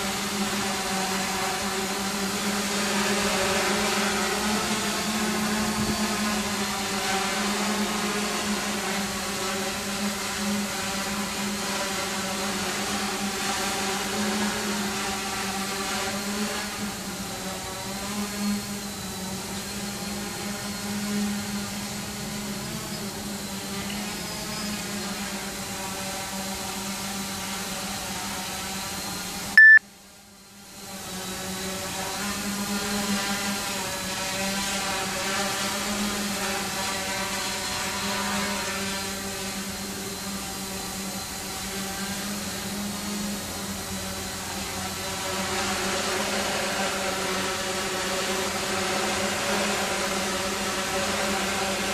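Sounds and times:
quadcopter propellers humming: 0:00.0 - 0:51.9
loud high beep: 0:29.6 - 0:29.8.

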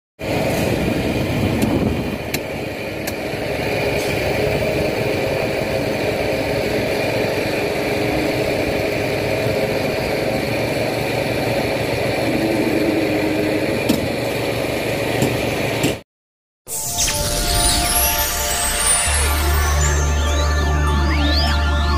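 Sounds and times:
diesel truck engines running: 0:00.2 - 0:16.0.

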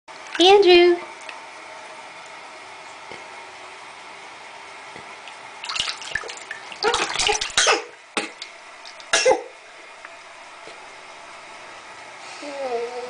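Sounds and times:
water splashing in bath tub: 0:00.2 - 0:01.4, 0:05.1 - 0:09.6.

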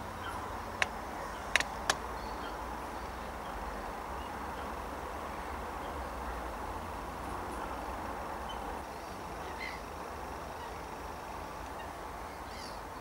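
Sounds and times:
faint background hiss: 0:00.0 - 0:13.0
sharp clicks: 0:00.8 - 0:02.0.

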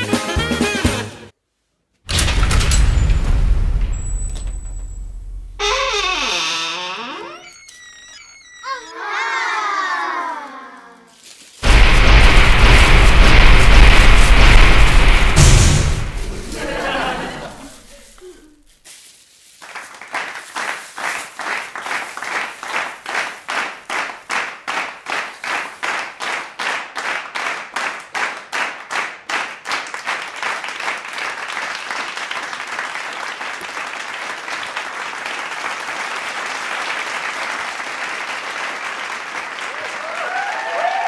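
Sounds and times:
crowd clapping in unison: 0:11.6 - 0:15.6, 0:19.6 - 0:41.0
continuous applause: 0:11.6 - 0:18.0, 0:19.6 - 0:41.0.

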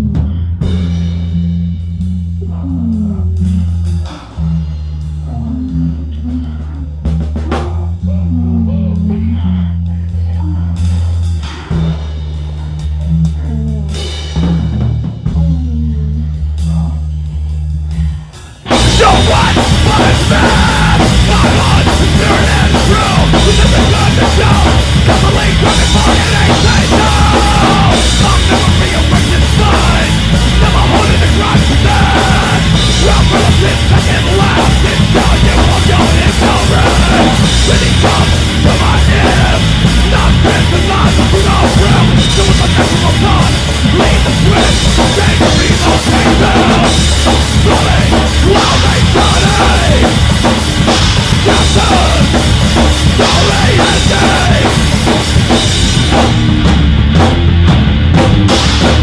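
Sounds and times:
busy drum kit: 0:00.0 - 0:59.0
heavy rock song: 0:00.0 - 0:59.0.

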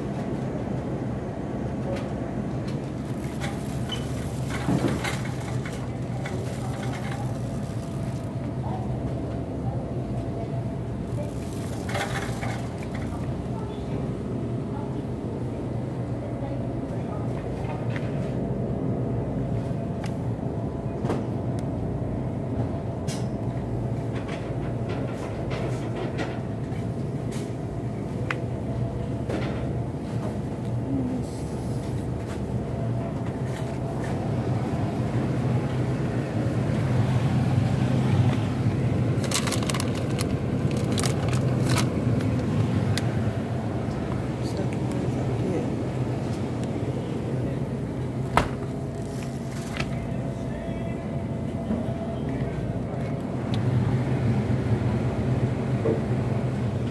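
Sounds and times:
freezer rumble and hum: 0:00.0 - 0:56.9.

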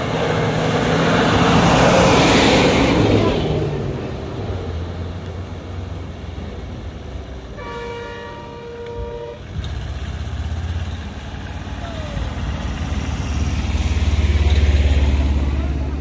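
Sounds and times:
vehicle horn honk: 0:07.6 - 0:09.4.

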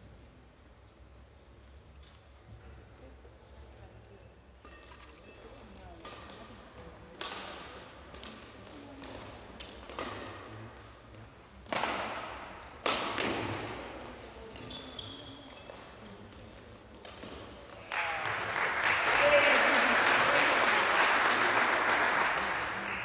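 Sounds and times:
racket hitting shuttlecock: 0:07.2 - 0:10.5, 0:11.6 - 0:14.7
shoe squeaking on court floor: 0:14.5 - 0:16.0
applause: 0:17.8 - 0:23.0.

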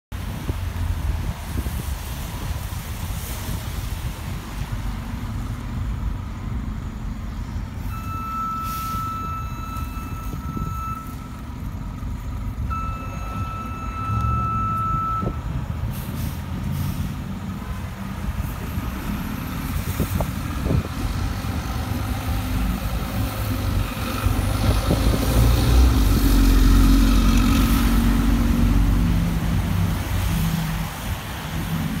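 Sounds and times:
bus engine running: 0:00.2 - 0:32.0
electronic warning tones: 0:07.9 - 0:11.4, 0:12.7 - 0:15.4
short air hiss: 0:15.9 - 0:17.2.

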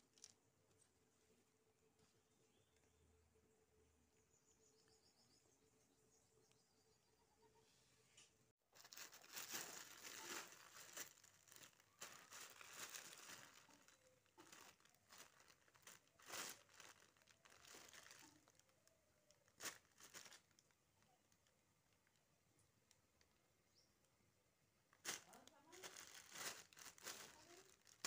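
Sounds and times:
plastic bag crinkling: 0:00.0 - 0:00.4, 0:08.7 - 0:22.2, 0:24.9 - 0:28.0.

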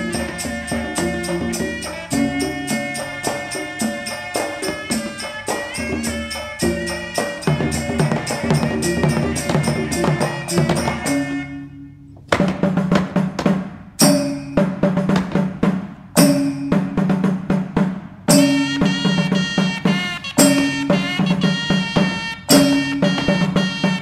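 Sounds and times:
percussive music with drums: 0:00.0 - 0:11.5, 0:12.1 - 0:24.0.

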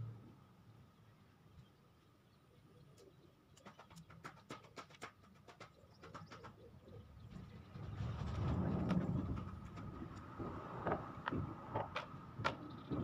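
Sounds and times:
bird calls: 0:00.8 - 0:08.0, 0:12.4 - 0:13.0.

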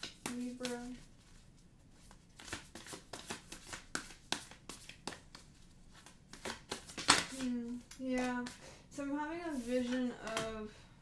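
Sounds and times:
cards shuffling and snapping: 0:00.0 - 0:01.0, 0:02.0 - 0:08.6.

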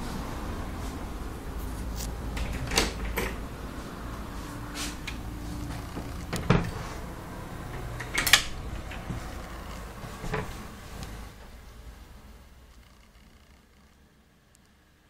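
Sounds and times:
doors knocking and clattering: 0:02.3 - 0:03.5, 0:05.1 - 0:07.0, 0:07.6 - 0:10.7.

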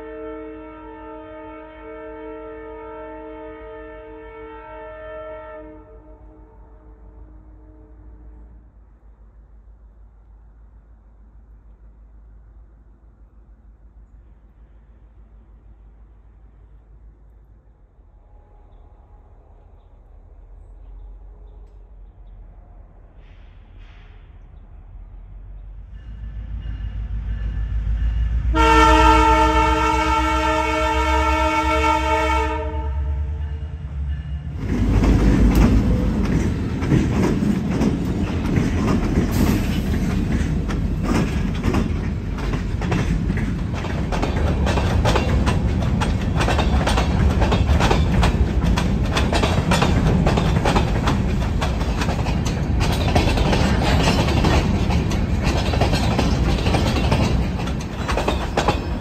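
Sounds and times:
train air horn: 0:00.0 - 0:08.8, 0:25.8 - 0:34.6
locomotive engines passing: 0:08.1 - 0:59.0
freight cars rumbling past: 0:17.9 - 0:59.0
wheels clicking over rail joints: 0:34.1 - 0:59.0.

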